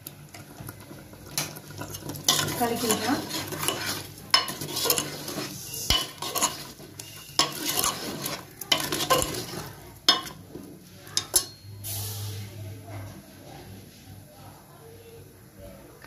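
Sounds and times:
masala sizzling in oil: 0.0s - 12.7s
metal ladle scraping a pot: 1.4s - 10.6s.

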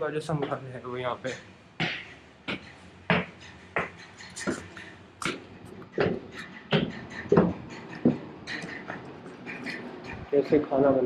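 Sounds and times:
footsteps on stone: 1.8s - 9.9s.

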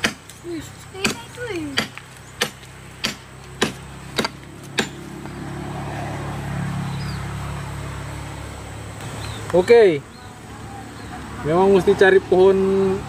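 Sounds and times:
machete chopping wood: 0.0s - 0.4s, 1.0s - 5.2s
vehicle engine hum passing: 0.0s - 13.0s.

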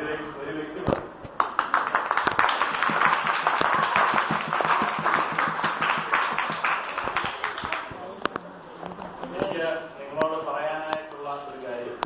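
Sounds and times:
audience applause: 1.4s - 8.0s.

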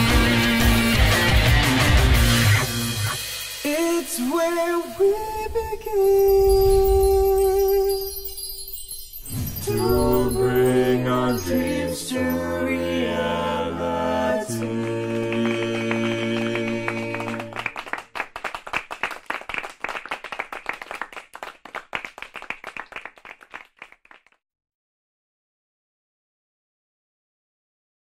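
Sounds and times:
music with held chords and singing: 0.0s - 5.0s, 9.6s - 17.6s
people clapping: 14.5s - 24.4s.

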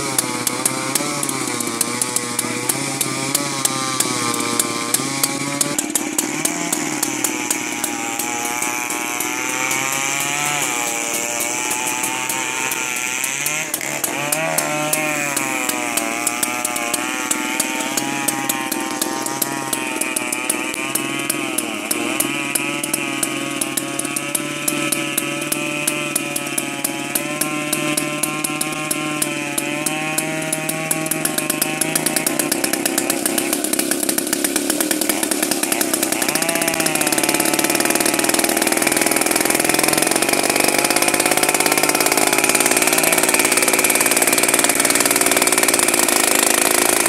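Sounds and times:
chainsaw engine revving: 0.0s - 47.0s
sharp ticks: 0.0s - 47.0s.

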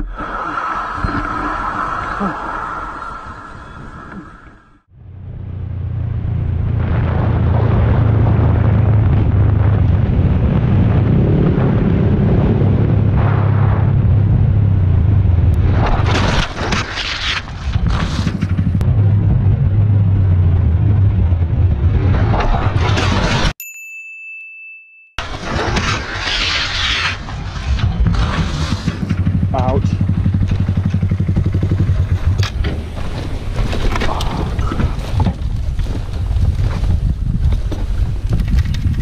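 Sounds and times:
wind rush on microphone: 6.6s - 16.2s, 27.6s - 39.0s
motorcycle engine running: 28.7s - 32.4s.

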